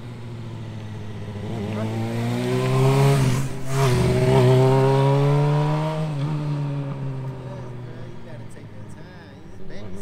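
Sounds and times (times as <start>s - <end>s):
motorcycle accelerating past: 0.2s - 7.6s.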